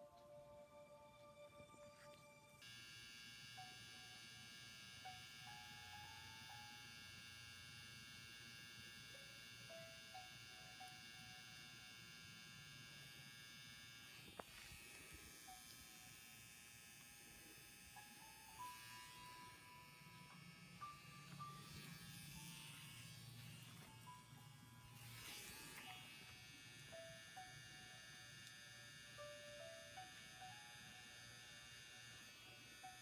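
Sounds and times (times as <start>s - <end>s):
quiet background music: 0.0s - 33.0s
makeup pen machine buzzing: 1.9s - 33.0s.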